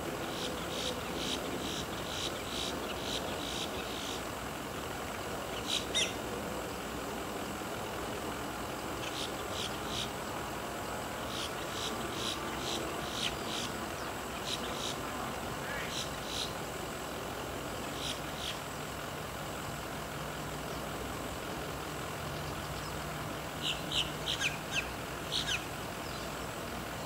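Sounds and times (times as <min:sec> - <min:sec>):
distant turboprop engines: 0:00.0 - 0:27.0
sweeping bird call: 0:05.5 - 0:06.2, 0:11.2 - 0:16.6, 0:17.9 - 0:18.6, 0:23.6 - 0:26.4
high bird chirps: 0:05.6 - 0:06.2, 0:23.6 - 0:26.3.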